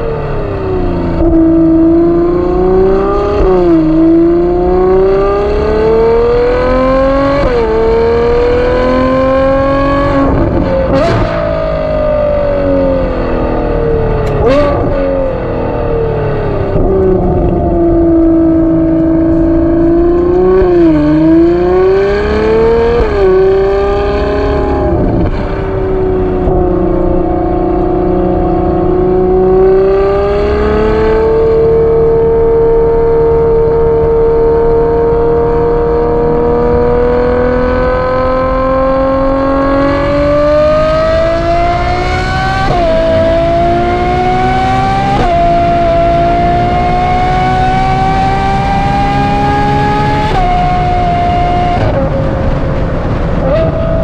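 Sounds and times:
car engine running: 7.0 - 32.0.

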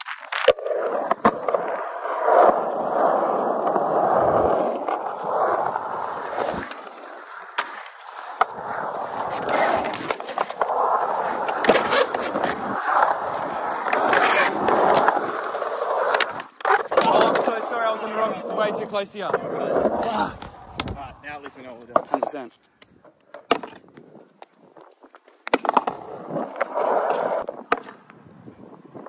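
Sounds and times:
skateboard wheels rolling on concrete: 0.0 - 29.0
skateboard clacking on concrete: 4.8 - 17.7, 19.3 - 24.5, 25.2 - 28.2.

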